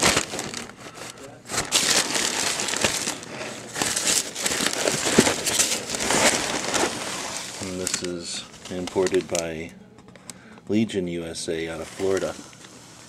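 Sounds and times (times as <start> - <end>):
stiff paper crinkling: 0.0 - 9.7.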